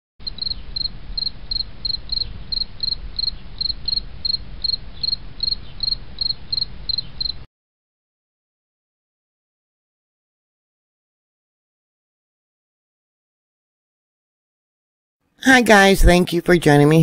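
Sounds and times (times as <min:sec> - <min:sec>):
insect chirping: 0:00.2 - 0:07.5.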